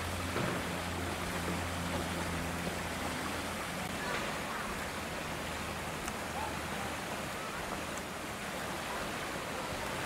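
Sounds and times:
faint distant voices: 3.8 - 10.0.

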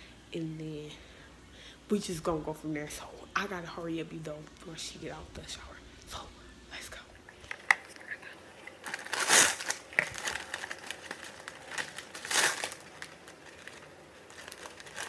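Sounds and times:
plastic wrapper crinkling: 7.3 - 15.0.

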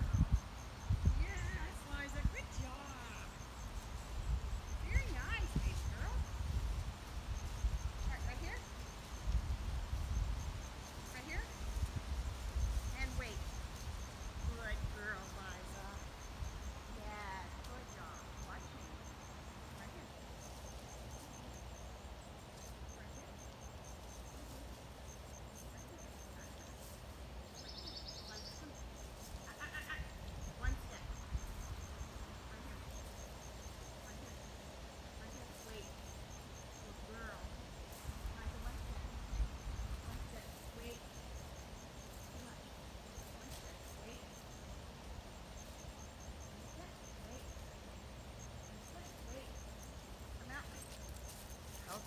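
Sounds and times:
insect chirping: 0.0 - 52.0.

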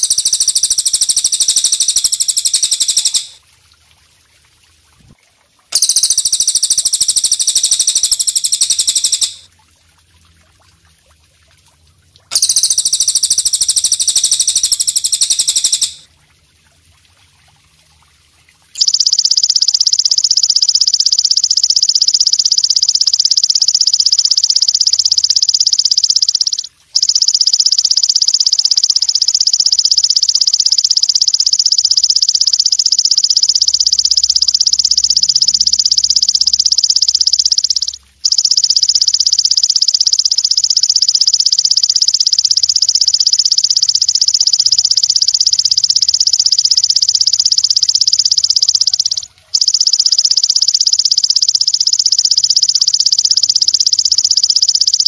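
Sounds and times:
katydid buzzing trill: 0.0 - 3.4, 5.8 - 9.4, 12.3 - 16.0, 18.8 - 55.0.

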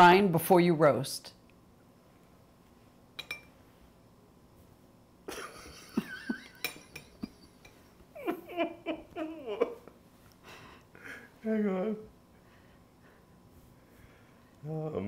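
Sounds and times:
man and woman laughing quietly: 5.3 - 12.1
kitchenware clattering: 6.3 - 7.8.

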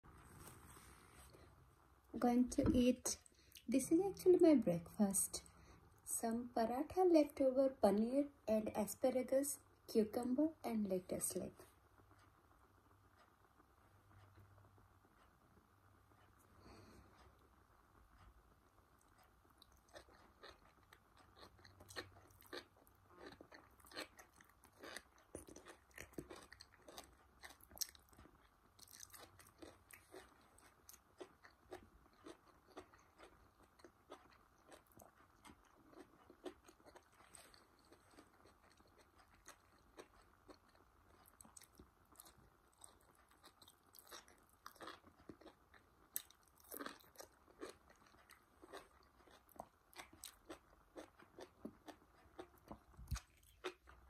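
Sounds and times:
chewing crisp crunches: 19.0 - 54.0.

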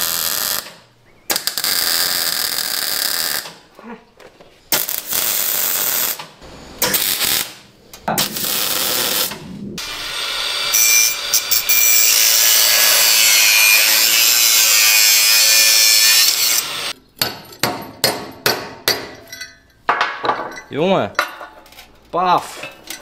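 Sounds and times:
power tool grinding metal: 9.8 - 17.0
hammer strikes on metal: 17.2 - 19.3.

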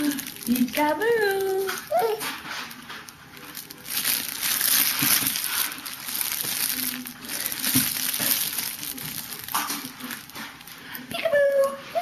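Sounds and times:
crinkly fabric toy rustling: 0.0 - 11.8.

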